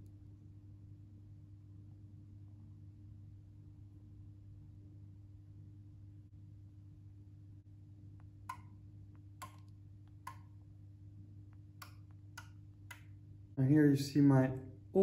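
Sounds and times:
low steady hum: 0.0s - 15.0s
fingertip tapping touchscreen: 8.5s - 10.6s.

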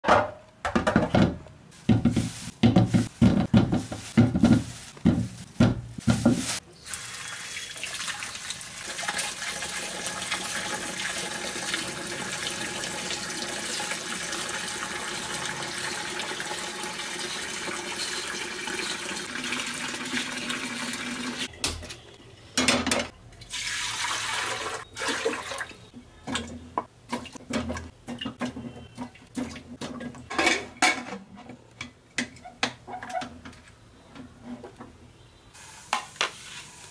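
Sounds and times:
pan and potatoes knocking: 0.0s - 6.6s
potatoes rubbed by hand: 1.7s - 6.6s
tap water running into a pan: 6.9s - 21.5s, 23.5s - 25.7s.

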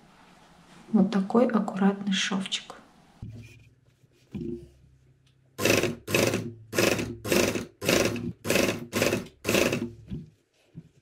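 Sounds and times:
sewing machine stitching: 5.6s - 10.0s.

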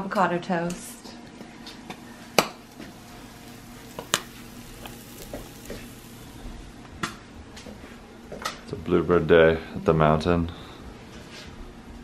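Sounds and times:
eggs sizzling in a pan: 1.9s - 7.0s.

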